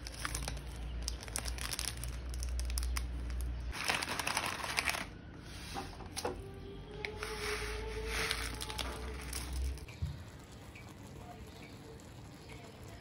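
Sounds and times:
plastic packaging crinkling: 0.0 - 5.2, 7.8 - 11.4.

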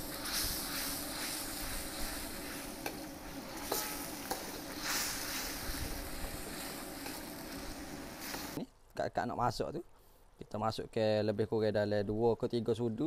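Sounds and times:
ladle scraping a wok: 0.0 - 8.6
sauce sizzling in a wok: 0.0 - 8.6.

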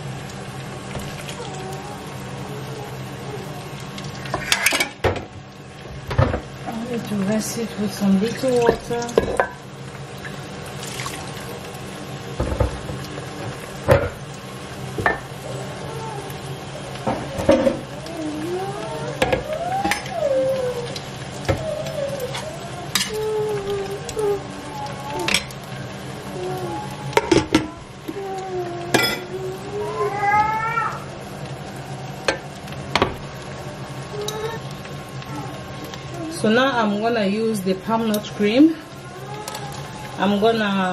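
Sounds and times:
pot squealing on glass hob: 4.2 - 5.1, 18.9 - 27.9, 28.9 - 31.1
pot knocking against pot: 12.4 - 13.0.

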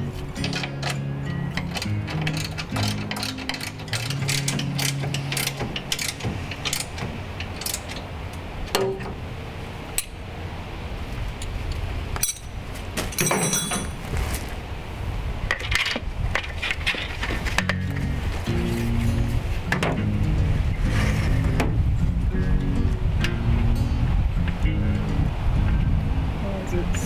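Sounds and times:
hand tools clicking on metal: 0.4 - 9.2
ringing metal: 12.2 - 14.0.

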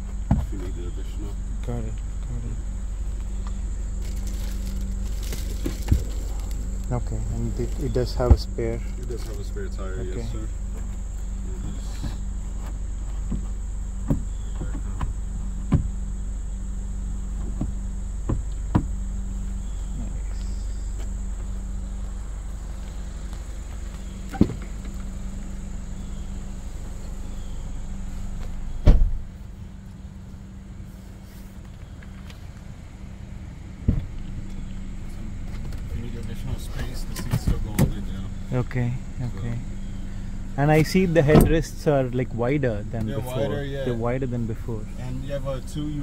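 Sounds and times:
outside background hum: 0.0 - 46.0
car door shutting: 0.1 - 1.3, 3.3 - 9.8, 10.7 - 16.1, 17.3 - 19.8, 22.7 - 29.4, 33.8 - 34.5, 35.4 - 38.3, 40.8 - 42.0
clicks and knocks of car trim: 12.0 - 16.0, 17.4 - 19.0.

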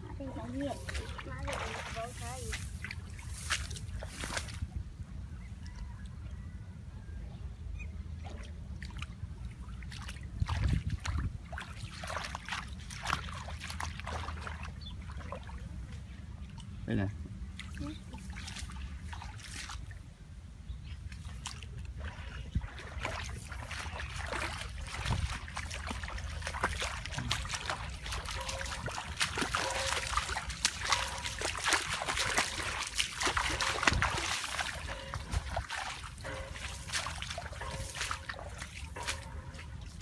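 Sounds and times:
feet sloshing through water: 0.0 - 6.4, 8.0 - 16.8, 17.4 - 20.1, 20.9 - 40.0.

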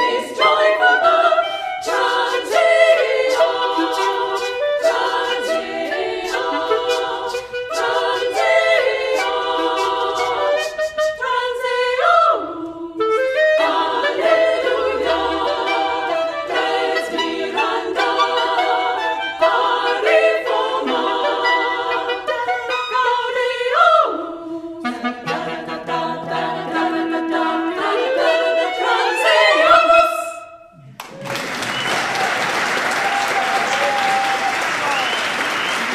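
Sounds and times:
women's choir singing: 0.0 - 30.8
audience applause: 31.0 - 35.9.

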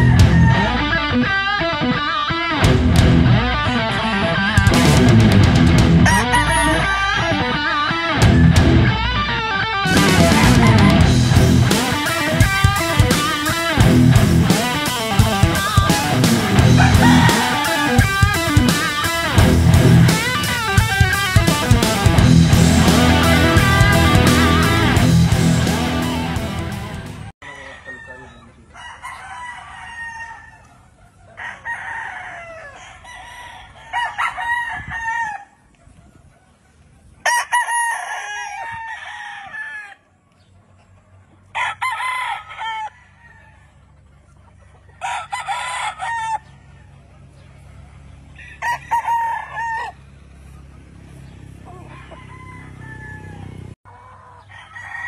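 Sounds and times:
guitar music: 0.0 - 27.3
roosters crowing: 0.0 - 55.0.

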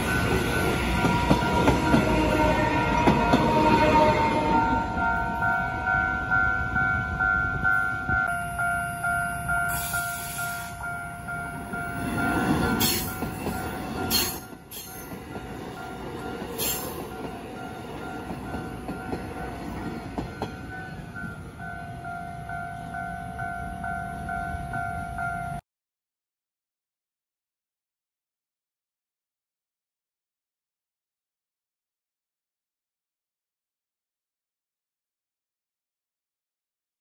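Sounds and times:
clicks of passing train cars: 0.0 - 8.3, 9.5 - 25.1
crossing warning bell ringing: 0.0 - 25.6
train rumble: 0.0 - 25.6.

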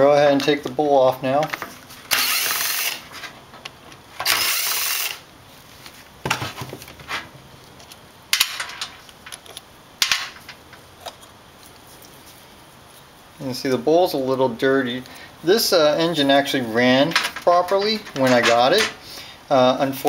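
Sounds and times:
cordless drill running: 2.1 - 3.0, 4.2 - 5.2.

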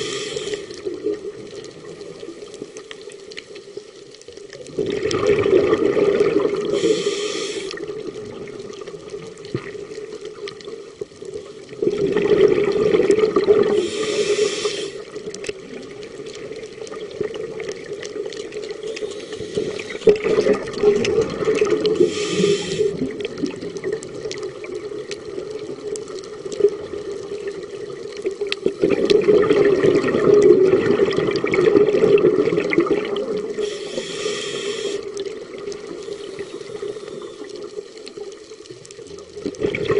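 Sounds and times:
regulator hiss: 0.0 - 0.9, 6.6 - 7.9, 13.7 - 15.2, 18.8 - 20.1, 21.9 - 23.1, 33.5 - 38.0
exhaled bubbles rumbling underwater: 0.0 - 39.9.

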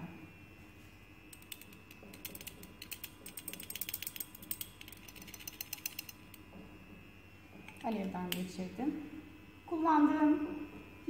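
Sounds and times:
rapid mechanical clicking: 1.3 - 6.4.

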